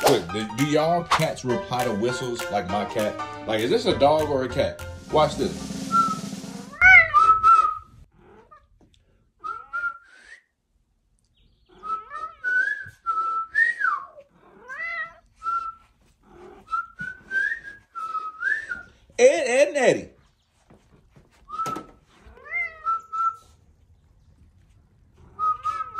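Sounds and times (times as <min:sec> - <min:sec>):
person whistling: 0:05.8 - 0:07.9, 0:11.9 - 0:14.1, 0:16.7 - 0:18.9, 0:22.8 - 0:23.5
cat meowing: 0:06.7 - 0:08.8, 0:11.7 - 0:12.9, 0:14.4 - 0:15.4, 0:22.1 - 0:23.3, 0:25.3 - 0:25.9.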